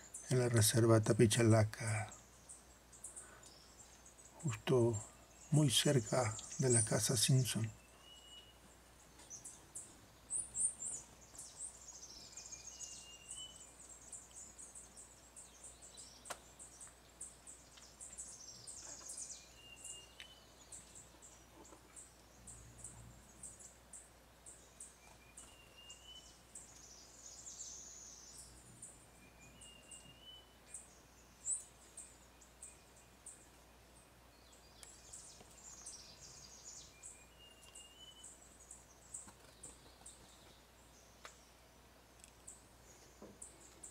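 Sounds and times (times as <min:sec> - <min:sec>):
small birds chirping: 0:00.0 - 0:43.9
faint click: 0:16.2 - 0:17.0, 0:41.2 - 0:41.4, 0:42.2 - 0:42.4.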